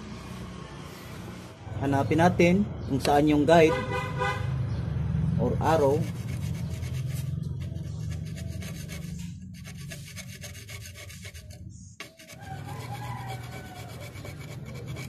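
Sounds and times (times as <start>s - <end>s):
tool scraping inside brake drum: 5.8s - 15.0s.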